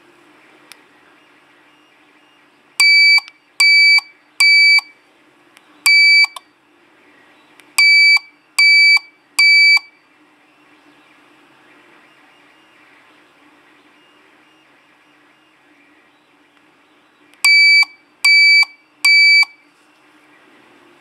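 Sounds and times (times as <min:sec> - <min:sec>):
car alarm buzzer beeping: 0:02.8 - 0:04.9, 0:05.9 - 0:06.4, 0:07.8 - 0:09.9, 0:17.4 - 0:19.6.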